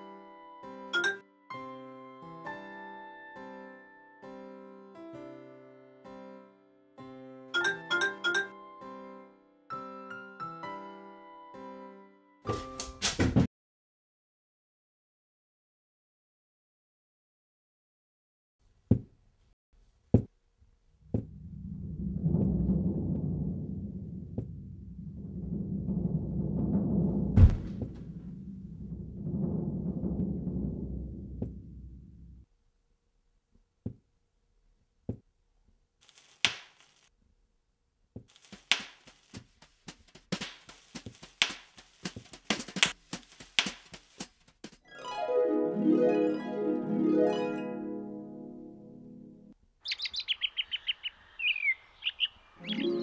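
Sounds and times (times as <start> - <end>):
low rolling drum rumble: 20.8 - 32.5
heavy drum hits: 22.1 - 32.4
bubble wrap popping: 36.0 - 37.1, 38.3 - 39.6.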